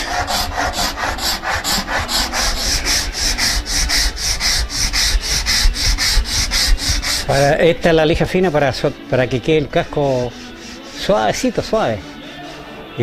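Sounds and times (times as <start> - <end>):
dry scratchy rubbing on wood: 0.0 - 13.0.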